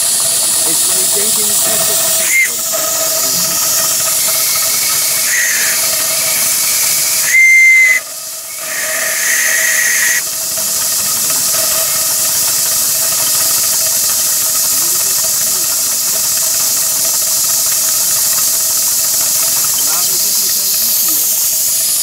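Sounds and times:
steam hissing: 0:00.0 - 0:22.0
steam whistle toots: 0:00.2 - 0:10.4.

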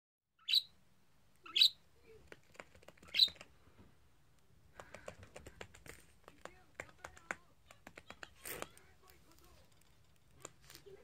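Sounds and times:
budgerigar chirps: 0:00.4 - 0:00.8, 0:01.4 - 0:01.8, 0:03.1 - 0:03.4.

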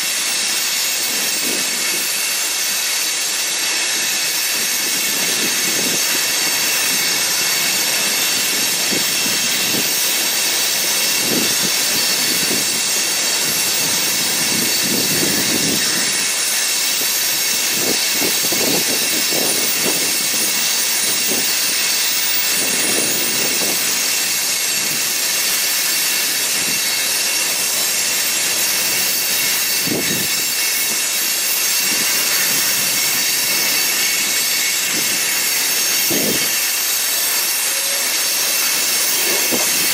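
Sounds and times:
freight train wheels rolling on rail: 0:00.0 - 0:39.9
faint high wheel squeal: 0:25.2 - 0:39.9.

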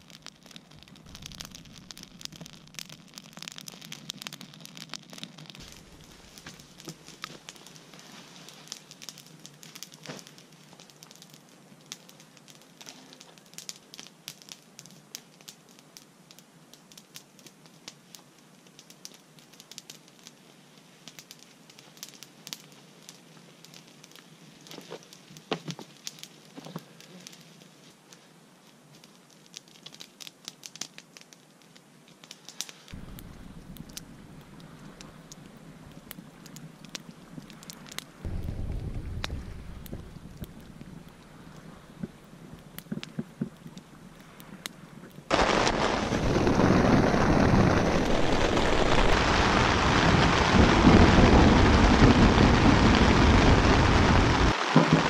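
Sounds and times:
campfire crackling and popping: 0:00.0 - 0:55.0
low steady rush: 0:33.0 - 0:42.8.

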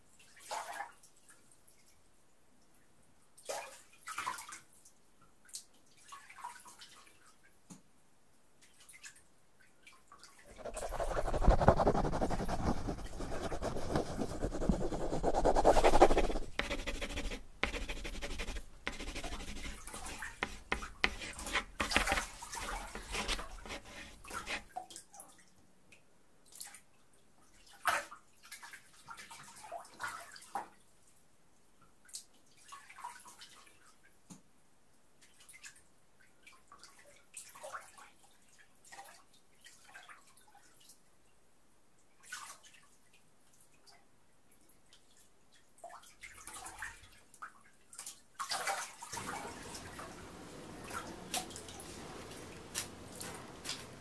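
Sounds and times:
water drips and splashes: 0:44.9 - 0:54.0.

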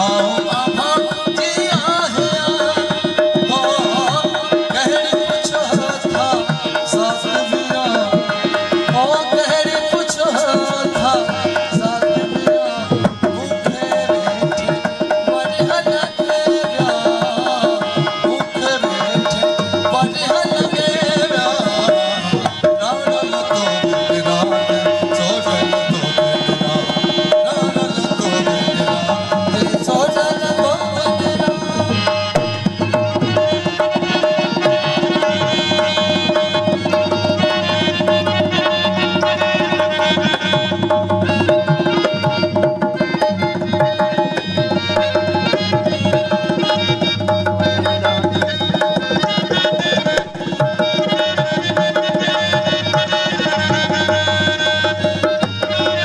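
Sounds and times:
held melodic tones: 0:00.0 - 0:56.0
tabla drumming: 0:00.0 - 0:56.0.

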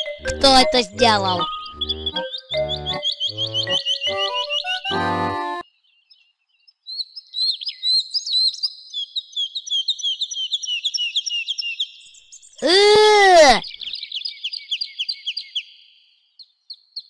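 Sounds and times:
birds chirping: 0:00.0 - 0:05.6
children's music: 0:00.0 - 0:05.6.

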